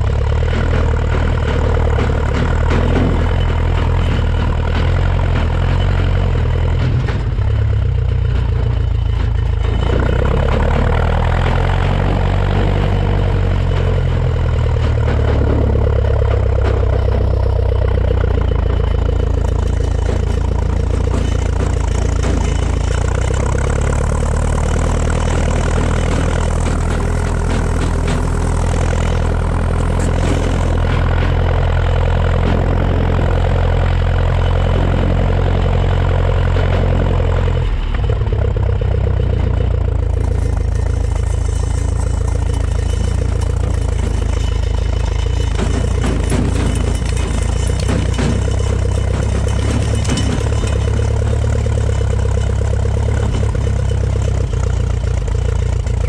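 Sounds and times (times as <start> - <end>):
tractor engine running steadily: 0.0 - 56.0.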